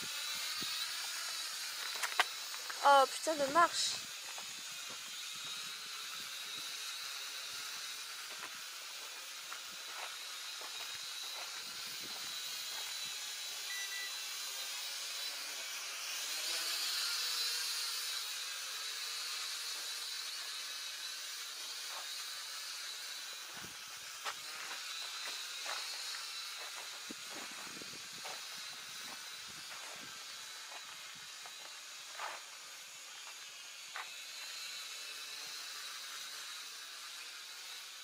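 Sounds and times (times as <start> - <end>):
toy drone propellers whining: 0.0 - 38.0.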